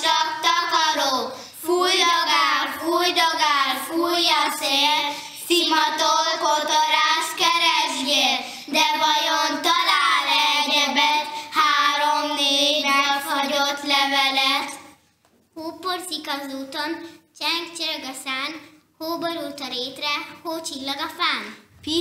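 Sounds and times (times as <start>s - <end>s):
girls singing together: 0.0s - 14.2s.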